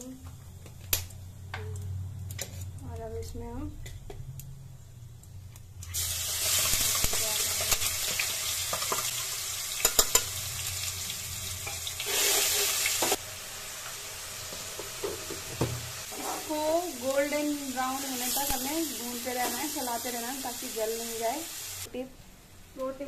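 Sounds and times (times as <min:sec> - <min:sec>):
onion sizzling in hot oil: 0:05.8 - 0:21.9
spoon clicking against pan: 0:09.8 - 0:10.3.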